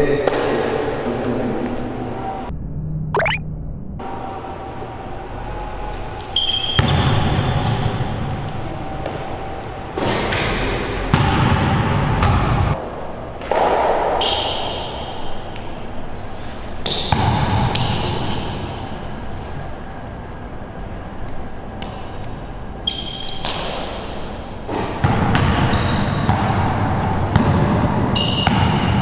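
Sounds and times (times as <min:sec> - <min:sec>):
basketball bouncing on hard court: 0:25.0 - 0:27.8, 0:28.4 - 0:29.0.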